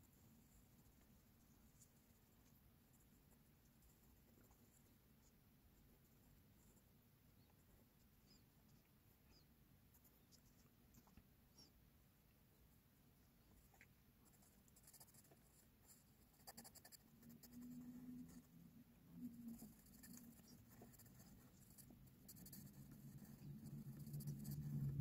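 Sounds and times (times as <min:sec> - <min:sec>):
pencil scratching on paper: 0:14.2 - 0:18.5, 0:19.2 - 0:25.0.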